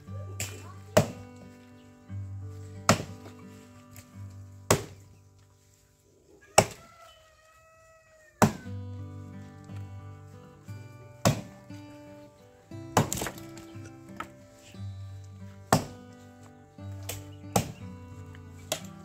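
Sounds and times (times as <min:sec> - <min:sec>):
axe chopping wood: 0:00.4 - 0:01.4, 0:02.8 - 0:03.4, 0:04.7 - 0:05.1, 0:06.5 - 0:06.9, 0:08.4 - 0:08.7, 0:11.2 - 0:11.6, 0:12.9 - 0:14.3, 0:15.6 - 0:16.1, 0:17.0 - 0:17.8, 0:18.6 - 0:19.0.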